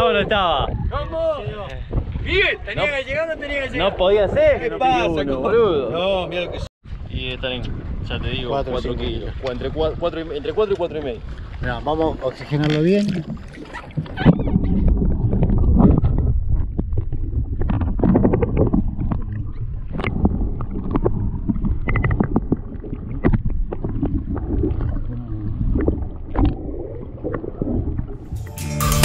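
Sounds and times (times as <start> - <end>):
muffled underwater water sloshing: 7.7 - 28.3.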